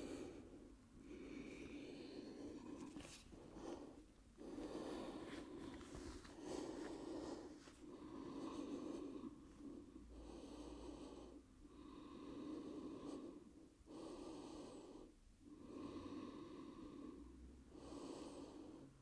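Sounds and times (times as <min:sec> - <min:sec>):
person breathing slowly: 0:00.0 - 0:19.0.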